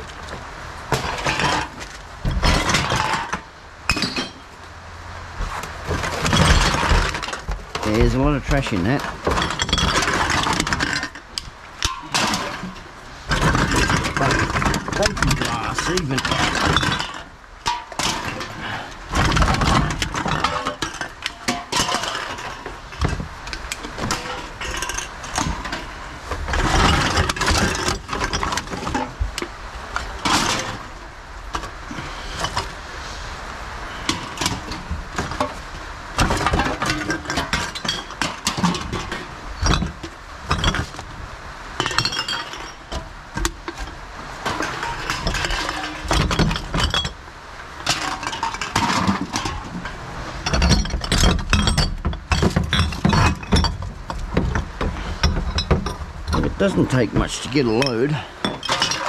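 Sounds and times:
cans and bottles clinking: 0.9 - 4.5, 5.4 - 32.8, 36.2 - 41.1, 41.8 - 47.2, 47.8 - 59.0
thumps: 47.9 - 59.0.

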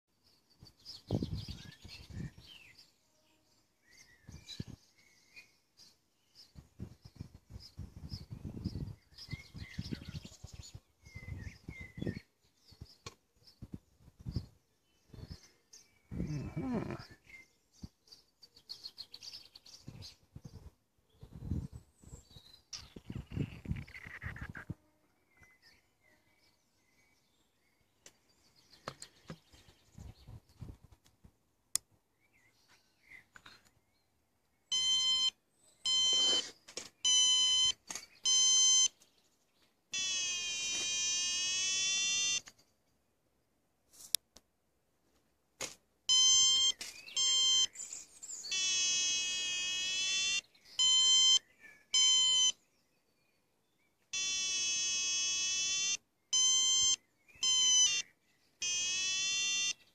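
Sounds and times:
variometer short beeps: 34.7 - 38.9, 40.0 - 42.4, 46.1 - 47.7, 48.5 - 51.4, 52.0 - 52.6, 54.2 - 58.0, 58.6 - 59.8
variometer continuous tone: 40.0 - 42.5, 48.5 - 51.4, 54.2 - 58.0, 58.6 - 59.8.

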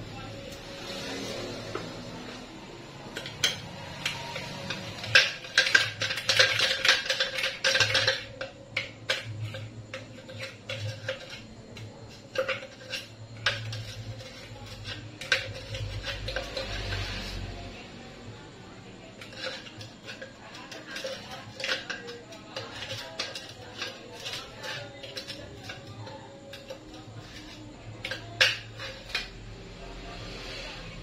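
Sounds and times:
metal spoon scraping blender jar: 3.0 - 17.8, 18.9 - 29.6.

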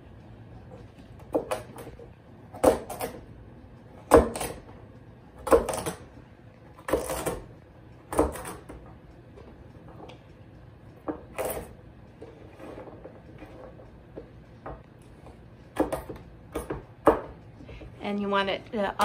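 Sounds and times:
knife chopping on wooden board: 4.1 - 4.6.

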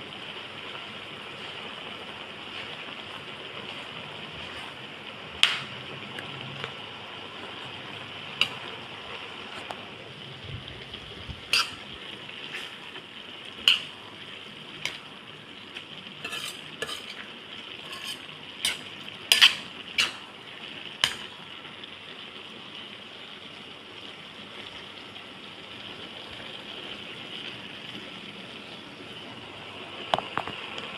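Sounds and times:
food sizzling in a pan: 0.0 - 6.0, 6.6 - 30.9
metal spoon scraping a pan: 11.5 - 11.8, 12.4 - 12.8, 13.6 - 14.0, 16.2 - 20.3, 21.0 - 21.3.

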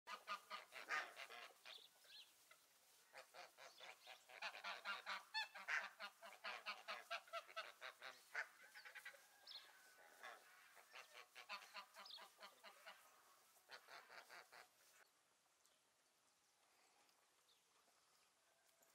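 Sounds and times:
geese honking: 0.1 - 15.0.

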